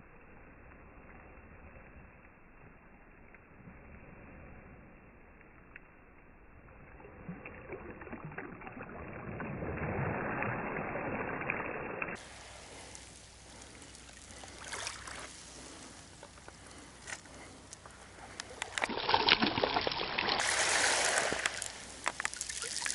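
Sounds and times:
close crackling and clicking: 0:12.1 - 0:20.5, 0:21.2 - 0:22.9
small waves over pebble beach: 0:12.2 - 0:17.0, 0:18.2 - 0:22.9.

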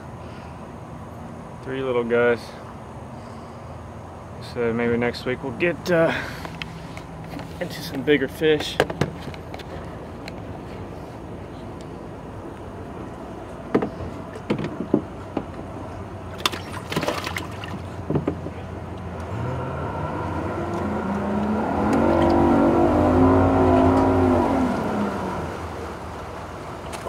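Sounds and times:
boat engine running: 0:06.8 - 0:27.0
fish knocking in boat well: 0:16.3 - 0:18.5.

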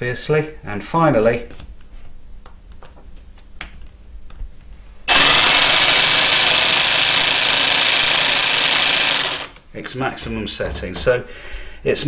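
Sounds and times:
cordless jigsaw running: 0:05.1 - 0:09.6.

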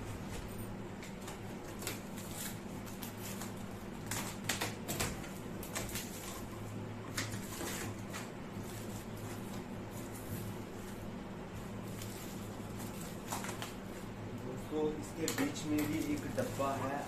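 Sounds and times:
steady low hum: 0:00.0 - 0:17.0
plastic wrap crinkling: 0:07.3 - 0:14.0, 0:15.0 - 0:17.0
cardboard rustling and scraping: 0:15.5 - 0:17.0.

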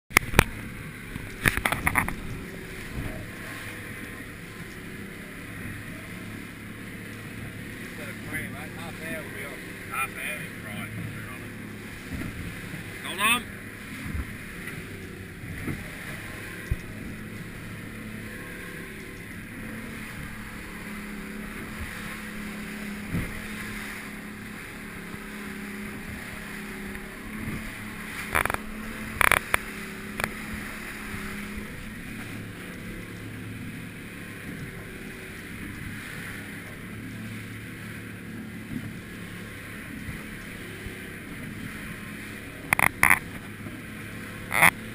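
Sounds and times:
boat engine humming: 0:00.1 - 0:44.9
water rushing along hull: 0:00.1 - 0:44.9.

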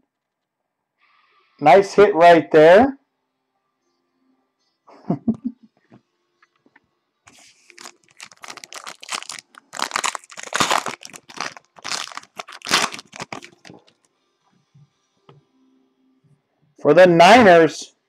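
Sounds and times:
wrapper tearing and crinkling: 0:07.3 - 0:14.0.

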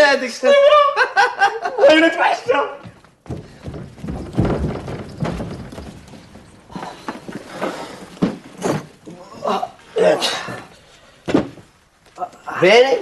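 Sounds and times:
scuffling footsteps: 0:02.4 - 0:09.1
dull thuds and knocks: 0:02.8 - 0:09.1, 0:11.2 - 0:11.7.

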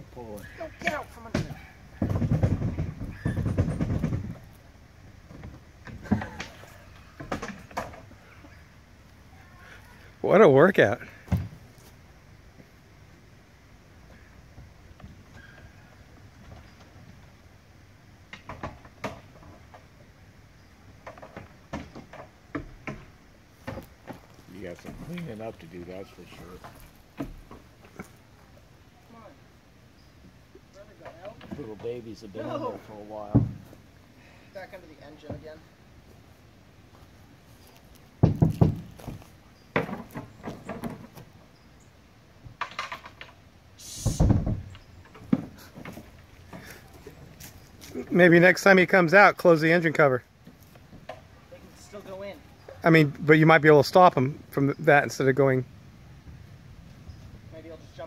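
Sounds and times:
sharp knocks: 0:38.2 - 0:41.1
short hiss: 0:43.8 - 0:44.5.

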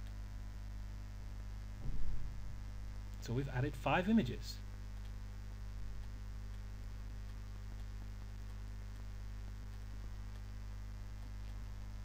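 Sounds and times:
electrical mains hum: 0:00.0 - 0:12.0
faint clicks: 0:04.9 - 0:11.8.

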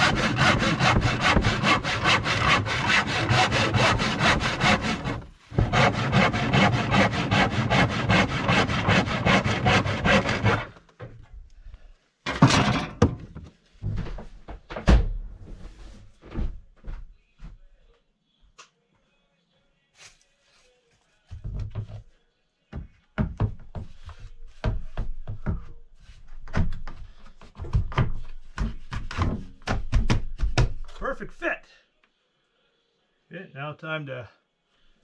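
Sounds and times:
hand saw cutting wood: 0:00.0 - 0:10.8
wood knocks and clunks: 0:12.3 - 0:15.2.

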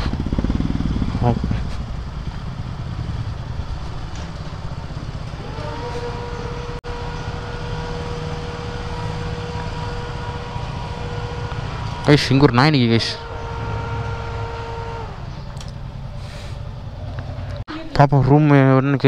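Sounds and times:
motorcycle engine rumbling: 0:00.0 - 0:17.7
steady high tone: 0:00.2 - 0:15.4.

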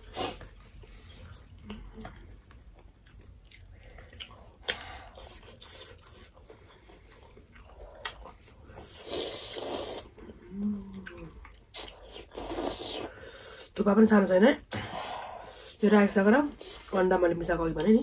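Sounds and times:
wet mouth clicks and chewing: 0:00.0 - 0:13.1
loud slurp of spaghetti: 0:08.9 - 0:10.1
person humming: 0:10.4 - 0:11.3.

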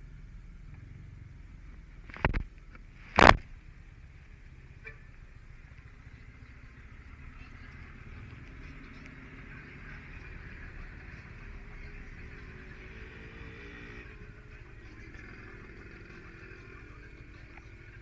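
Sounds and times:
passing traffic: 0:00.0 - 0:18.0.

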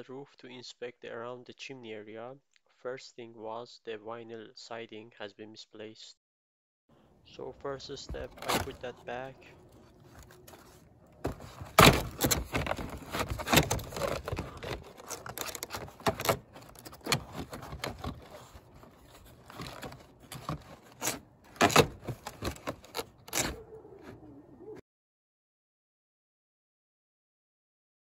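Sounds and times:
vinyl siding clicking and scraping: 0:07.7 - 0:24.8.

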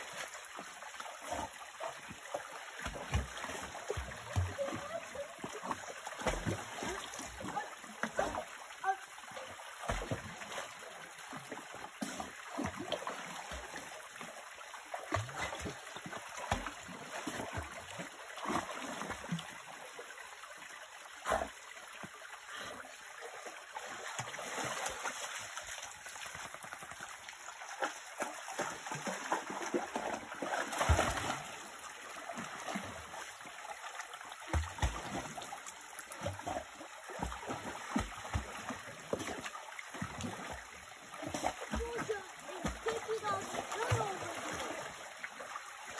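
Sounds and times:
stream running: 0:00.0 - 0:45.9
dog splashing in water: 0:27.7 - 0:31.6.

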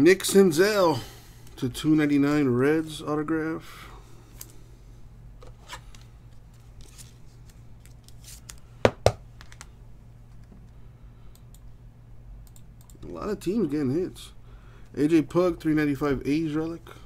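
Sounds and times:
plastic card sleeve crinkling: 0:05.8 - 0:08.7.

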